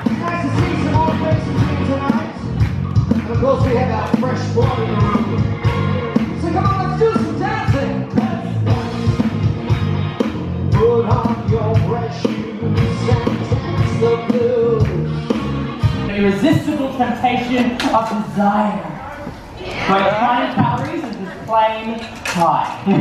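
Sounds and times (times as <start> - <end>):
drum kit: 0.0 - 16.8
person singing: 3.0 - 9.6, 10.7 - 16.1.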